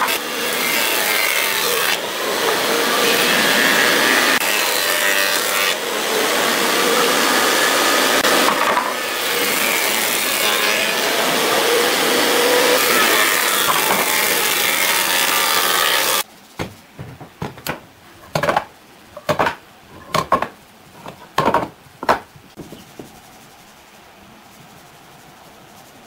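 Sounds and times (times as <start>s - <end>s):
power tool running on wood: 0.0s - 16.2s
sharp knocks: 16.6s - 23.1s.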